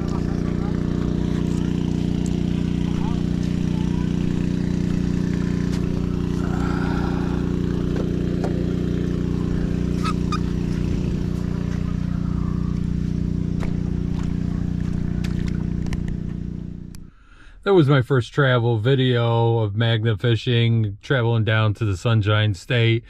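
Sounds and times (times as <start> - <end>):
engine idling: 0.0 - 17.4.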